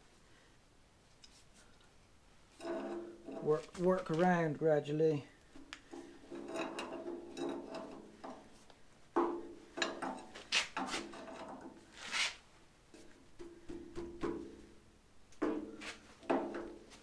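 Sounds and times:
pry bar scraping metal: 2.6s - 3.8s, 5.6s - 8.5s.

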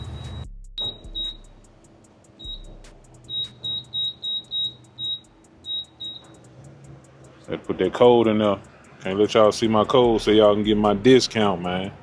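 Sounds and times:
keypad beeping: 0.1s - 1.5s, 2.4s - 6.6s.

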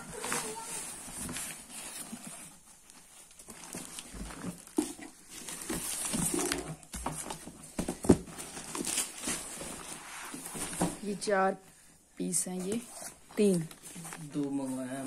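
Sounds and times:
packing foam and tape crinkling: 0.0s - 11.2s
packages knocking: 3.6s - 9.6s.

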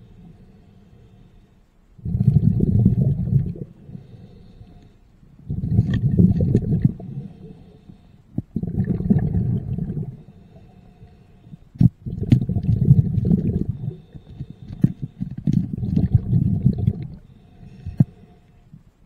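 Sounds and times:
underwater exhaled bubbles: 2.0s - 4.1s, 5.4s - 11.0s, 11.8s - 18.2s.

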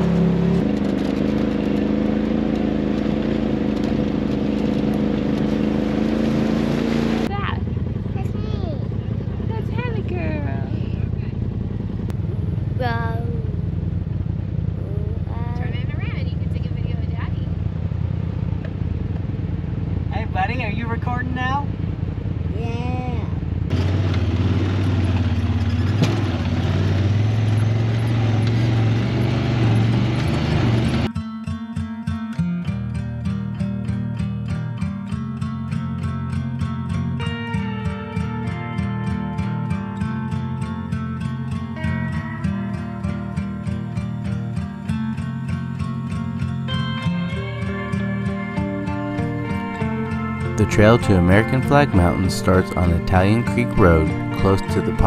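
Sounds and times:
utility vehicle engine running: 0.0s - 31.1s, 34.0s - 55.0s.

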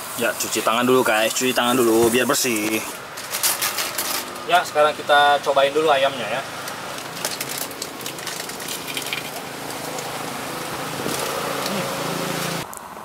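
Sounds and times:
roadside traffic: 0.0s - 13.0s
vehicle engine: 3.0s - 13.0s
crispy fried chicken being chewed: 7.0s - 12.5s.

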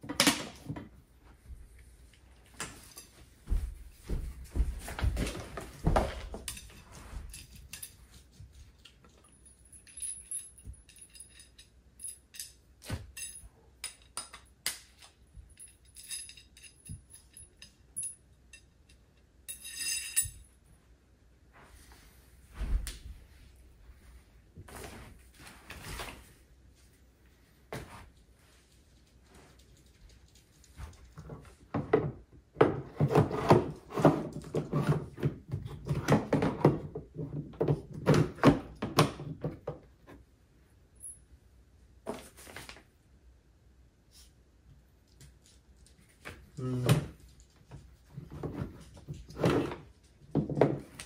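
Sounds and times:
light metallic clinks: 9.1s - 14.4s, 15.4s - 20.6s.

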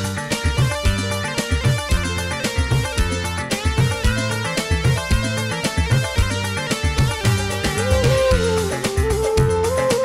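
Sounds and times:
steady drum beat: 0.0s - 9.8s
electric guitars: 0.0s - 10.0s
keyboard: 0.0s - 10.0s.

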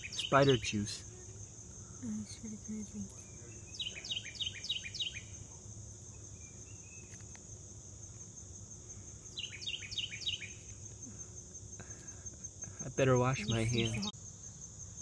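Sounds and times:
bird whistling song: 0.0s - 0.5s, 3.4s - 5.3s, 9.3s - 10.6s
insect trill: 0.0s - 15.0s.

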